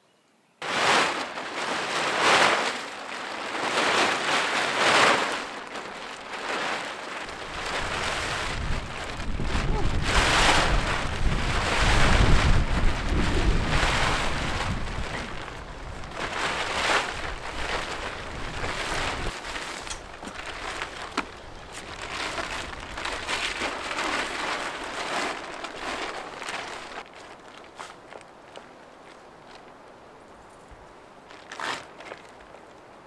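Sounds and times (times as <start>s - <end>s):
plastic tarpaulin rustling: 0.6s - 29.8s, 30.7s - 33.0s
wind on microphone: 7.2s - 19.5s.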